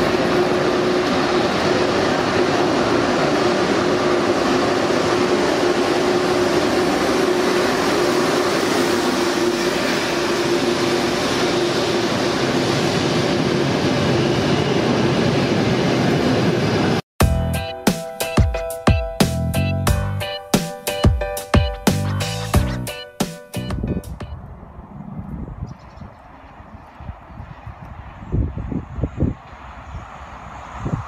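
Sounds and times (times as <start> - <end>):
electric train rushing rumble: 0.0 - 31.0
music with a beat: 17.2 - 24.3.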